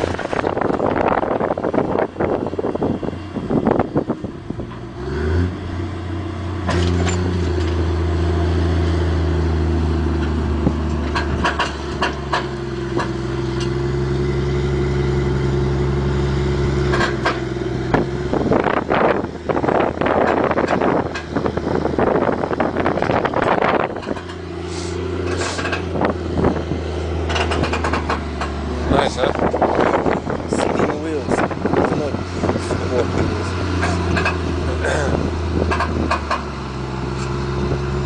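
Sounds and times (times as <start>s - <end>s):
wind buffeting microphone: 0.0s - 4.8s, 17.6s - 36.3s
tractor diesel engine running: 0.0s - 38.0s
clicks and knocks: 10.2s - 13.8s, 27.2s - 28.6s.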